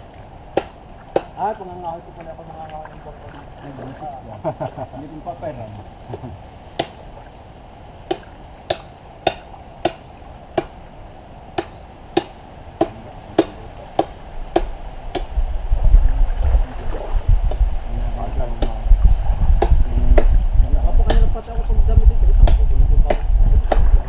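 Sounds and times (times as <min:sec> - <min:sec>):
hand tool chopping knocks: 0:08.1 - 0:10.0, 0:11.6 - 0:15.3
low rumble: 0:14.2 - 0:24.0.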